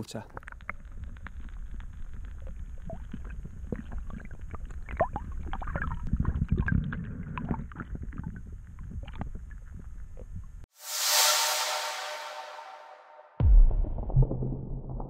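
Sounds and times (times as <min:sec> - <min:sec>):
small clicks and knocks underwater: 0:00.1 - 0:10.6
water churning underwater: 0:00.4 - 0:10.6.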